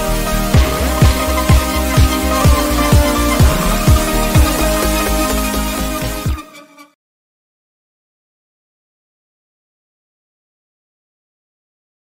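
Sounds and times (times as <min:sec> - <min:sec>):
electronic music with steady beat: 0:00.0 - 0:06.8.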